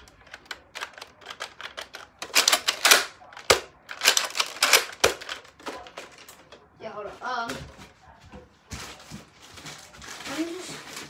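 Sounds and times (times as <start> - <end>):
plastic clacking and rattling: 0.0 - 6.6.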